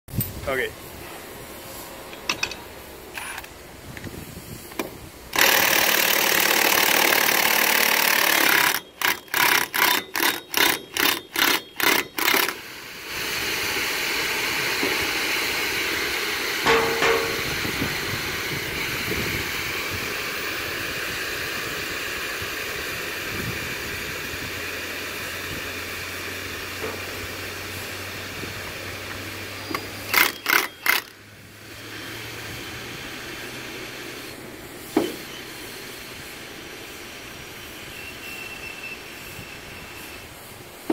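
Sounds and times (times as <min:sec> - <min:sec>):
pressure venting hiss: 0:00.2 - 0:09.1, 0:11.8 - 0:40.9
cordless impact drill running: 0:05.3 - 0:16.5, 0:29.4 - 0:34.2.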